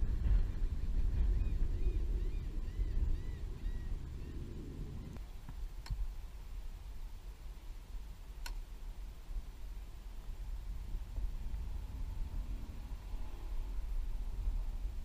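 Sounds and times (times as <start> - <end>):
wind rumble on microphone: 0.0 - 15.0
sharp clicks: 8.4 - 8.6.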